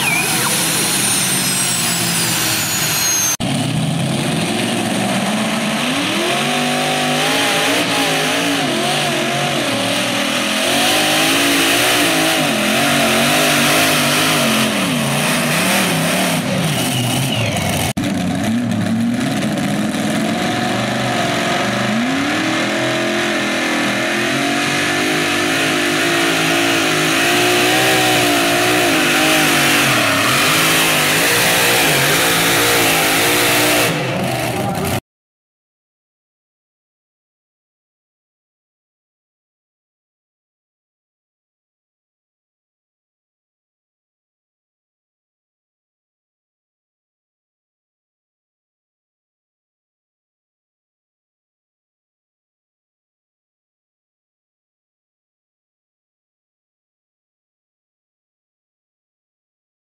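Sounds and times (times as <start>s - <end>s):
turbine whine winding down: 0.0s - 5.6s
pulling tractor engines roaring: 0.0s - 35.0s.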